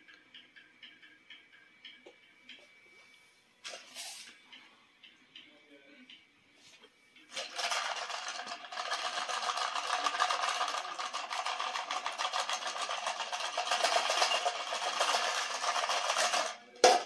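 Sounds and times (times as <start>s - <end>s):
twist ties rattling in plastic cup: 7.4s - 16.6s.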